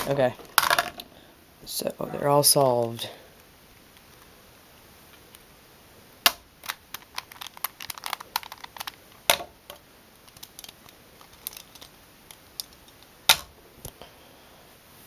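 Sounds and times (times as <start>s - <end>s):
plastic puzzle cube clicking: 6.3s - 9.3s.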